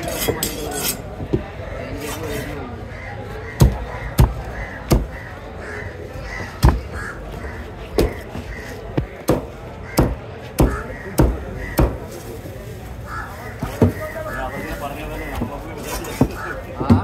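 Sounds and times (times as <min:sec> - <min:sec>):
cleaver chopping fish: 0:03.5 - 0:05.3, 0:06.5 - 0:07.0, 0:07.9 - 0:08.3, 0:08.9 - 0:12.1.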